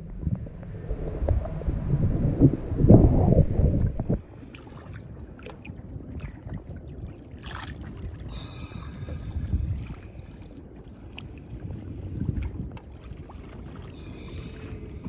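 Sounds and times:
wind buffeting microphone: 0:00.0 - 0:15.0
water slapping against boat: 0:02.9 - 0:15.0
small splashes: 0:04.4 - 0:09.0.

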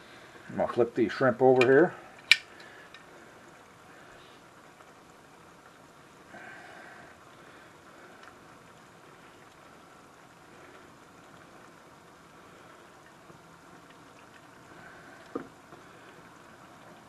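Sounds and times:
sauce sizzling and bubbling: 0:07.1 - 0:17.0.

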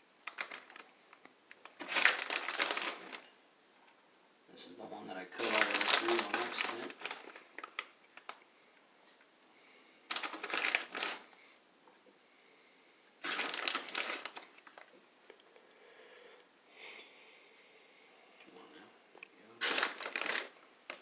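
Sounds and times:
plastic bag crinkling: 0:00.2 - 0:03.3, 0:05.3 - 0:08.4, 0:10.1 - 0:11.4, 0:13.2 - 0:15.0, 0:19.5 - 0:21.0.

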